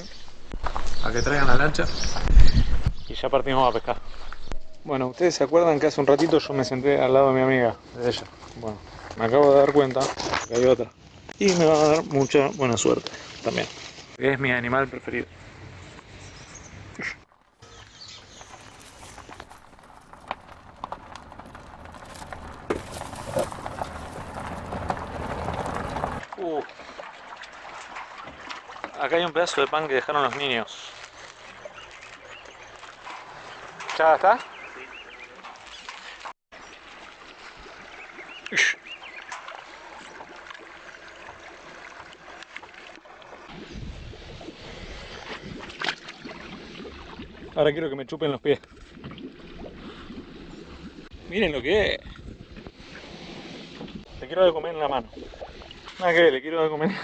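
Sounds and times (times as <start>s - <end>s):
wind rumbling on microphone: 0.0s - 4.9s, 18.0s - 26.2s, 43.5s - 45.8s, 49.6s - 56.0s
footsteps on gravel: 17.4s - 26.2s
water sloshing against boat hull: 17.6s - 29.6s
foot splashing into water: 17.6s - 43.6s.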